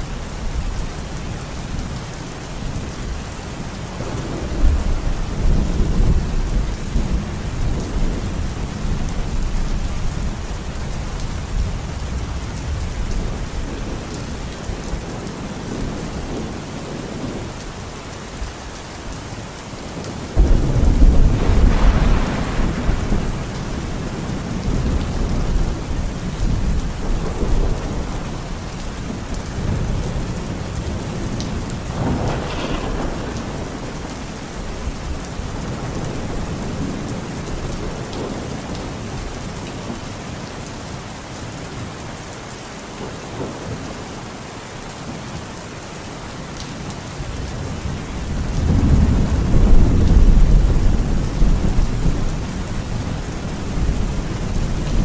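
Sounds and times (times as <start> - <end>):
heavy rain pouring: 0.0 - 55.0
thunder rumbling: 3.9 - 17.6, 20.0 - 39.0, 47.6 - 55.0.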